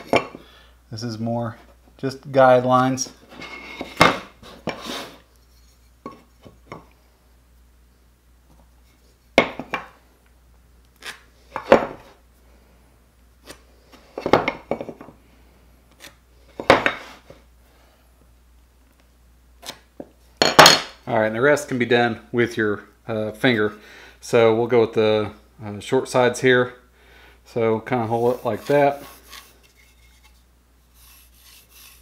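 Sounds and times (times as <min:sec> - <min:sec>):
pencil strokes: 0:28.1 - 0:32.0.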